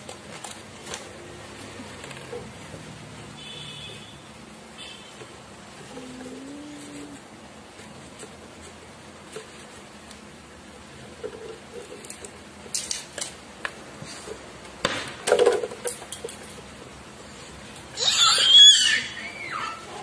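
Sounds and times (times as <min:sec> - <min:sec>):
toddler squealing: 0:18.0 - 0:20.0.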